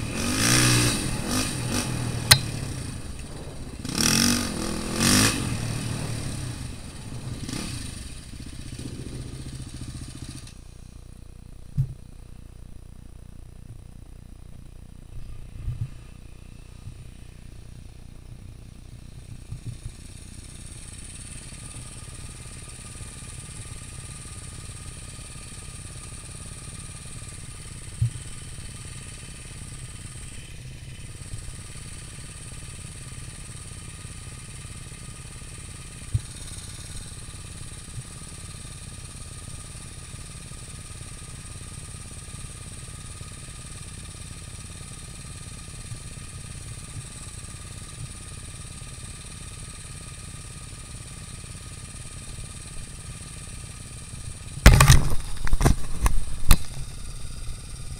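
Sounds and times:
faint steady whine: 0.0s - 33.6s
atv engines running: 0.0s - 57.9s
sharp knocks: 54.6s - 56.8s.

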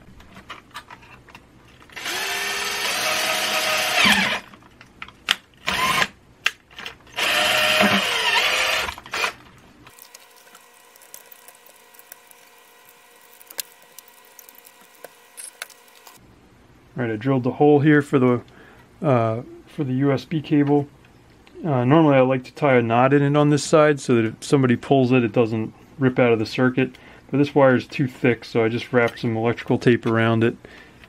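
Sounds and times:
power drill boring through plastic: 1.9s - 4.5s, 5.7s - 6.1s, 7.1s - 16.2s.

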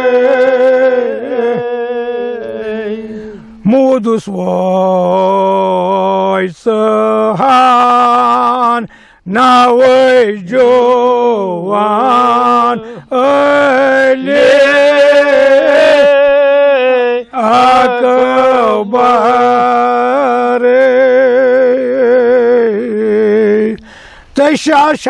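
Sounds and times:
elderly man chanting: 0.0s - 23.8s
man breathing: 3.0s - 3.6s, 8.9s - 9.3s, 12.8s - 13.1s, 23.8s - 24.4s.

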